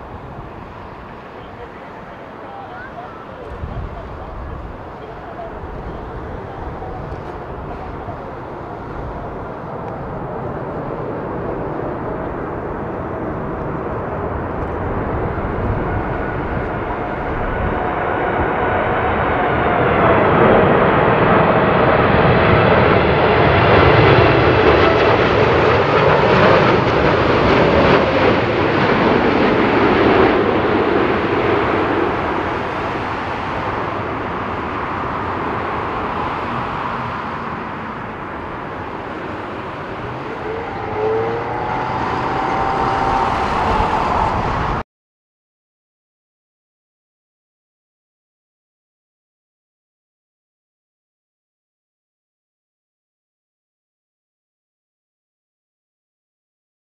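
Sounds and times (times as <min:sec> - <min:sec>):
higher engine whine: 0:00.0 - 0:44.8
jet engine noise: 0:00.0 - 0:44.8
engine whine falling in pitch: 0:38.7 - 0:44.8.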